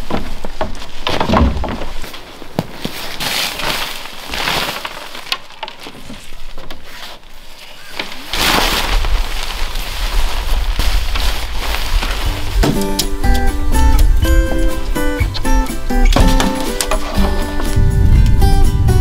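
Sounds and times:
tent fabric rustling and flapping: 0:01.8 - 0:13.2
wind rumble on microphone: 0:08.8 - 0:12.7, 0:17.2 - 0:19.0.

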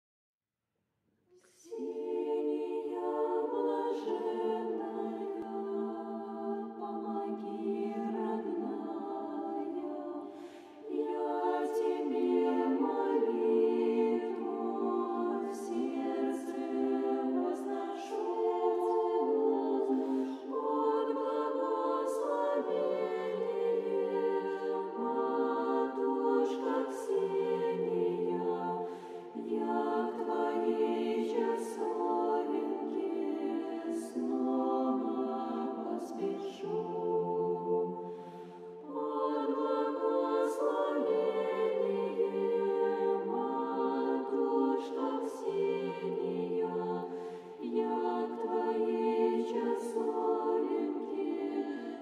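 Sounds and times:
choir singing a cappella: 0:01.3 - 0:52.0.

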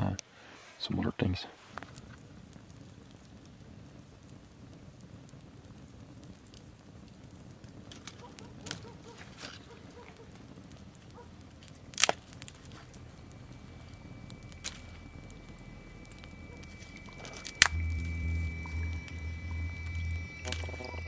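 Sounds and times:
campfire crackling and popping: 0:00.0 - 0:21.0.

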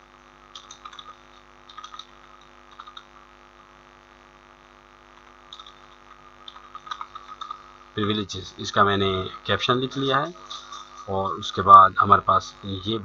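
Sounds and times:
electrical hum: 0:00.0 - 0:13.0
keyboard clicks: 0:00.6 - 0:03.1, 0:05.5 - 0:05.8, 0:06.4 - 0:07.6.

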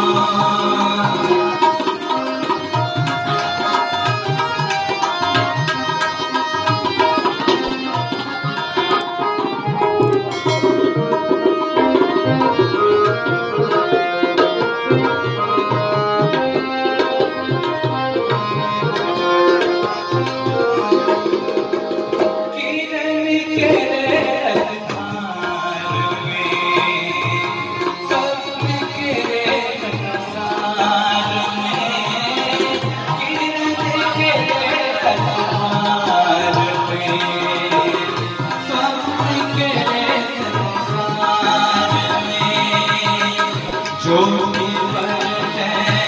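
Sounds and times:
harmonium: 0:00.0 - 0:46.0
tabla fast rhythm: 0:00.0 - 0:46.0.

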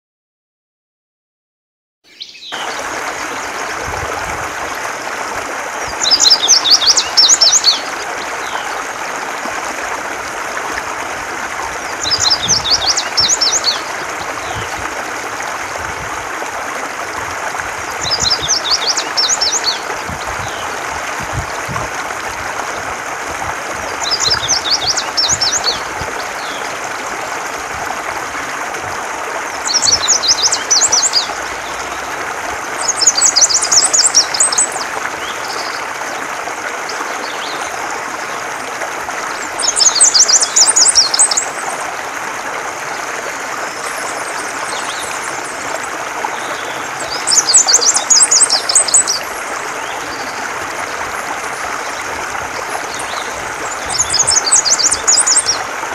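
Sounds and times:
bird singing: 0:02.1 - 0:02.8, 0:06.0 - 0:08.8, 0:12.0 - 0:13.9
running water: 0:02.3 - 0:55.9.

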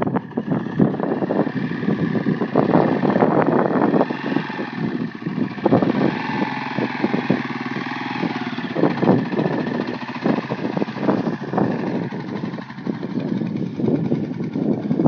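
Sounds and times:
quad engine revving: 0:00.0 - 0:15.0.

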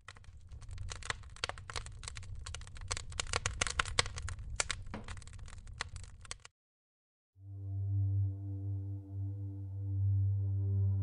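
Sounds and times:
wood fire crackling: 0:00.0 - 0:06.5.

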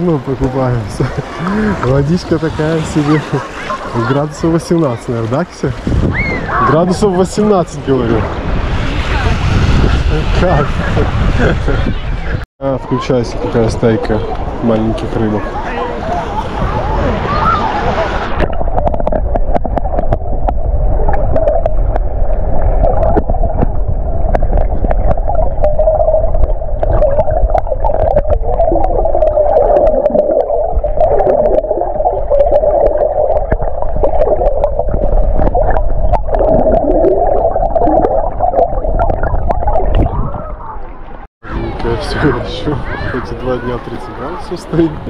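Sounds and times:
underwater rush of water: 0:00.0 - 0:12.0, 0:12.6 - 0:45.0
small underwater clicks and knocks: 0:18.4 - 0:22.1, 0:22.8 - 0:25.7.

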